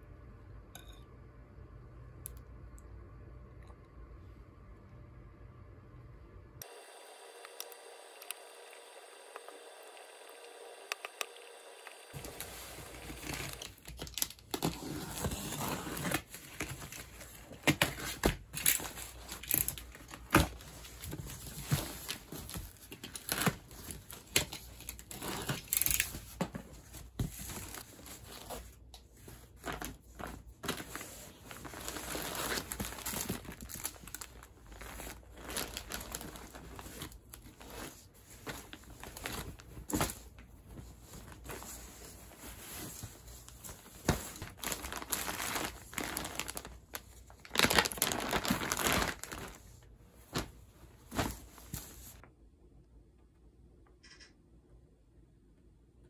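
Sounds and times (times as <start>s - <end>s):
paper and cardboard rustling: 12.1s - 52.2s
plastic bags crinkling: 12.1s - 52.2s.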